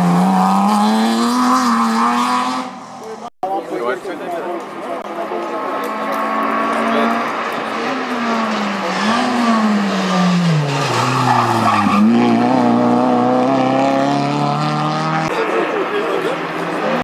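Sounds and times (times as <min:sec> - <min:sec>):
rally car engine: 0:00.0 - 0:03.3, 0:04.6 - 0:17.0.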